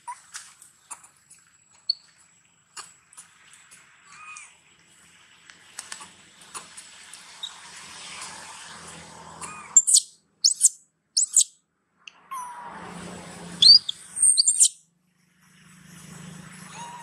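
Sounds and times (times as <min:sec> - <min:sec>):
young monkey squealing: 0:09.4 - 0:11.5, 0:13.6 - 0:14.8, 0:16.7 - 0:17.0.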